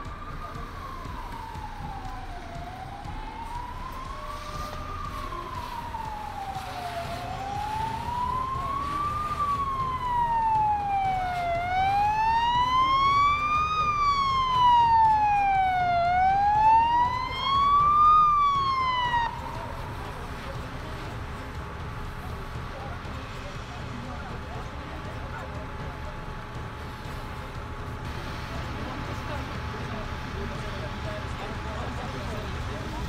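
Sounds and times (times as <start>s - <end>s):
fire engine siren wailing: 0.0s - 23.2s.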